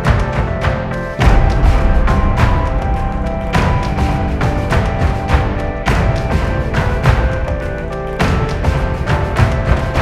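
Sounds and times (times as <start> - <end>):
soundtrack music with held notes: 0.0 - 10.0
steady drum beat: 0.0 - 10.0.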